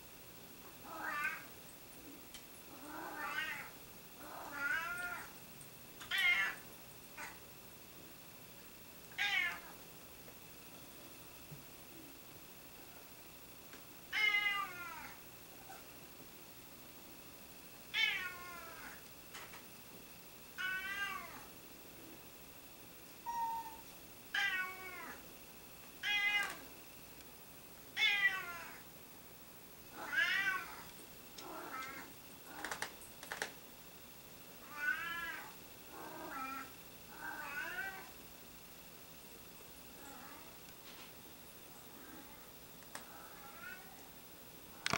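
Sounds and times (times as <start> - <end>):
cats meowing: 0.8 - 1.5, 2.7 - 5.3, 6.0 - 6.6, 9.1 - 9.8, 20.6 - 21.5, 23.2 - 25.2, 26.0 - 26.6, 28.0 - 28.8, 30.0 - 32.9.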